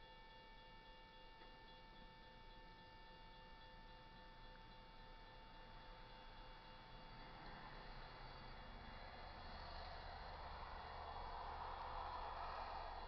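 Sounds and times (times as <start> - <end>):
faint high-pitched whine: 0.0 - 13.0
low hiss: 4.0 - 13.0.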